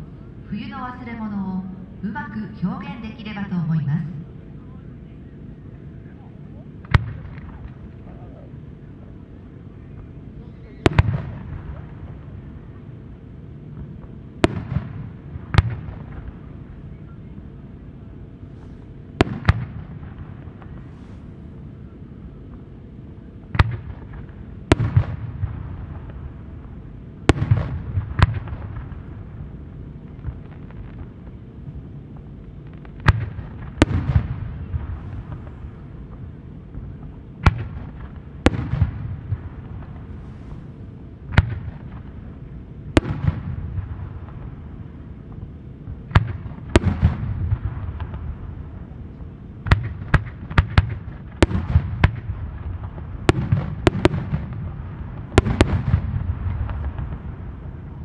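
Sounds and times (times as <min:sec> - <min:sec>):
low rumbling echo: 0:00.0 - 0:58.0
firework bangs: 0:10.6 - 0:12.4, 0:13.8 - 0:16.6, 0:18.6 - 0:21.2, 0:23.5 - 0:29.5, 0:32.7 - 0:36.2, 0:37.0 - 0:42.3, 0:42.9 - 0:44.7, 0:45.9 - 0:49.0, 0:49.6 - 0:58.0.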